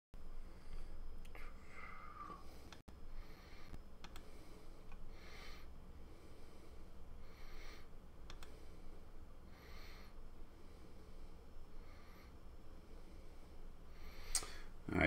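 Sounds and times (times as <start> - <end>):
faint nasal breathing: 0.4 - 14.8
light clicks: 4.0 - 4.3, 8.3 - 8.6.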